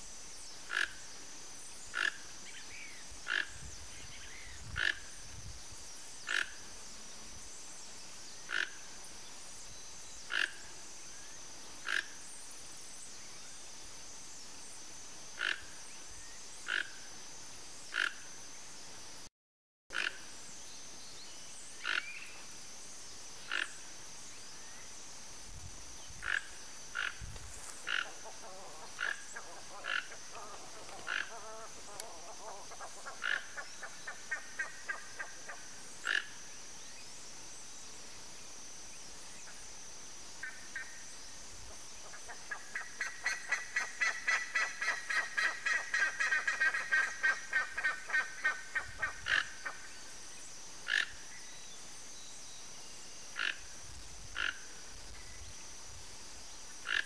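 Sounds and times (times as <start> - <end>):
toucan calling: 27.8 - 36.2.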